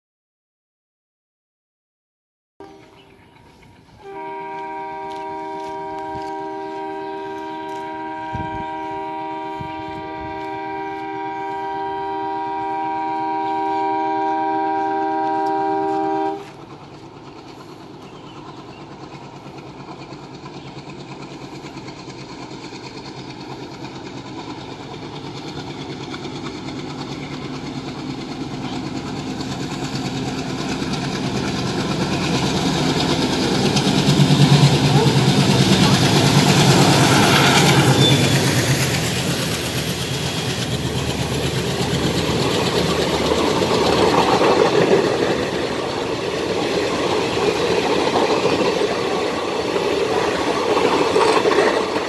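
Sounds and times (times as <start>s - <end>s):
locomotive horn blast: 2.6s - 3.2s, 4.0s - 16.6s
locomotive engine: 2.6s - 52.0s
train wheels on rails: 2.7s - 52.0s.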